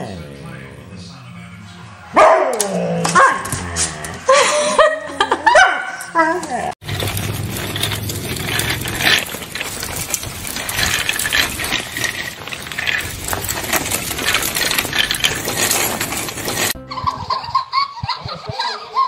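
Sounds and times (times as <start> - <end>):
wire shopping cart rattling: 6.8 - 16.8.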